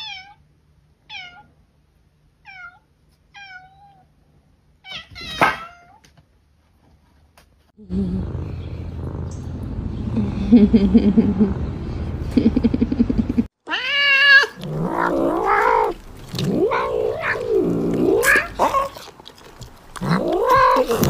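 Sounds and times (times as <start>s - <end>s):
cat purring: 7.9s - 13.5s, 14.6s - 18.9s
cat meowing loudly: 13.6s - 14.6s.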